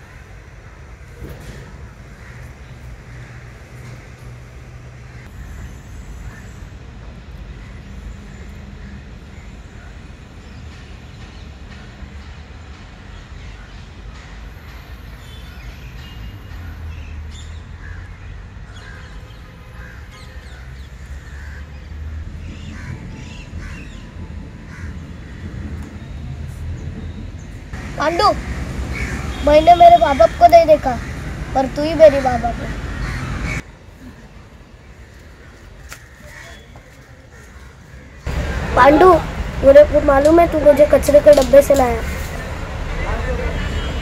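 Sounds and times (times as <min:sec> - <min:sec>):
birds calling: 0:15.2 - 0:33.6
crows cawing: 0:17.8 - 0:19.1, 0:19.8 - 0:21.7, 0:22.6 - 0:24.0, 0:24.7 - 0:25.6, 0:28.0 - 0:33.6.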